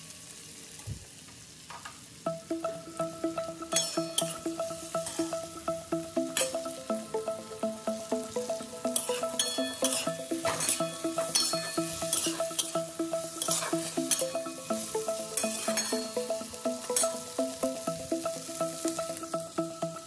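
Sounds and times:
vegetables sizzling: 0.0 - 20.0
background music: 2.2 - 20.0
metal spatula scraping a pan: 9.0 - 12.7, 13.3 - 14.3.

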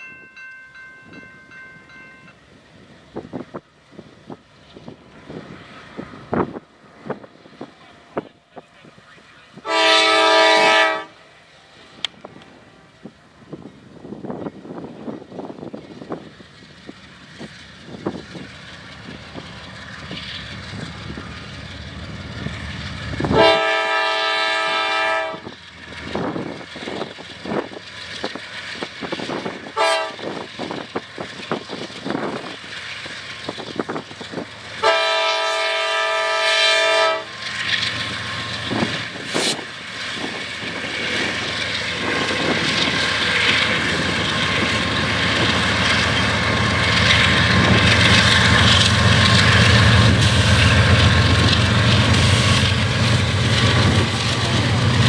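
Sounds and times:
train wheel noise: 0.0 - 55.0
locomotive air horn: 9.6 - 11.2, 23.3 - 25.5, 29.8 - 30.3, 34.8 - 37.3
diesel engines working: 11.1 - 55.0.

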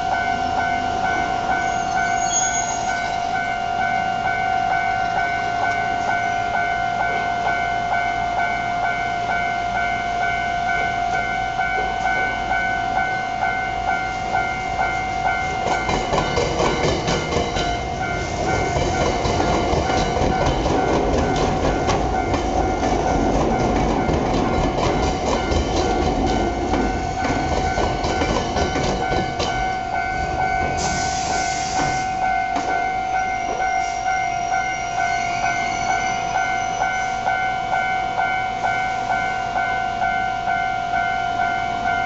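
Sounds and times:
level crossing bell ringing: 3.0 - 19.2, 32.0 - 42.0
train wheels clattering on rails: 14.3 - 37.0.

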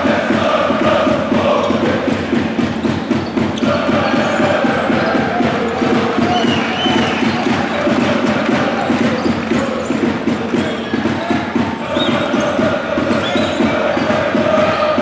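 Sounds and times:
crowd of fans talking: 0.0 - 15.0
basketball bouncing on court: 0.1 - 15.0.

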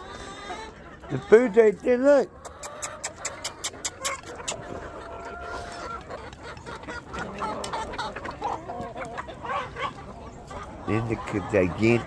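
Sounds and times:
chickens clucking: 0.0 - 12.0.

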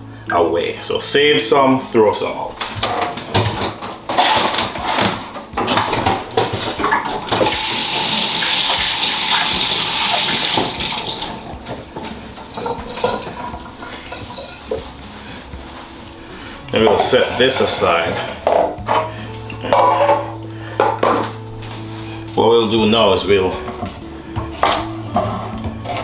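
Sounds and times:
knocks and clatter: 2.7 - 7.6
tap running into sink: 7.4 - 11.4.

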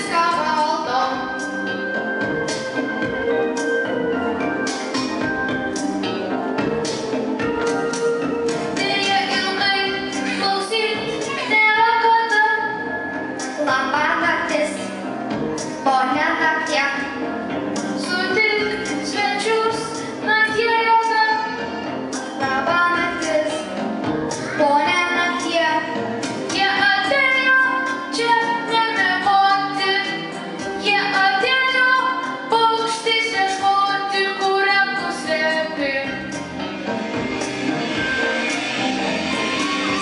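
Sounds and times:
musical accompaniment: 0.0 - 40.0
children singing through microphones: 8.8 - 12.9, 17.9 - 36.2.

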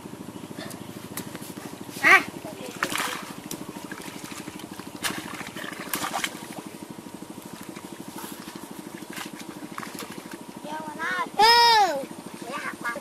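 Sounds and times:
feet splashing in water: 0.8 - 10.6.

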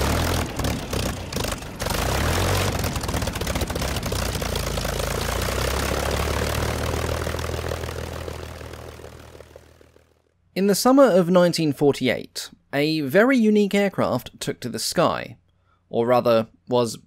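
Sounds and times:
piston aircraft engine starting: 0.0 - 10.2.

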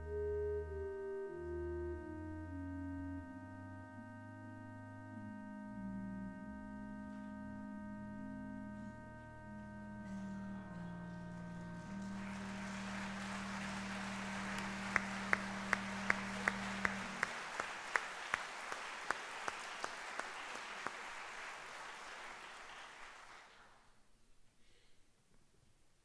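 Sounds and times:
close hands clapping loudly: 10.0 - 23.8
audience applauding: 10.6 - 23.9.

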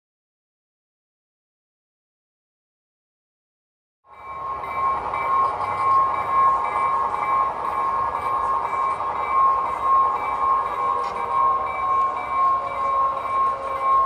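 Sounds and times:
locomotive bell ringing: 4.1 - 14.0
diesel engine: 4.2 - 14.0.

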